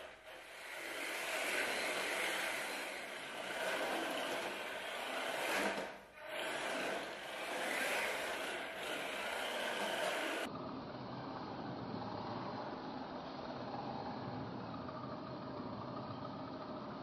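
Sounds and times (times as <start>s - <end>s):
toy car tyres scraping on tile: 0.0s - 10.5s.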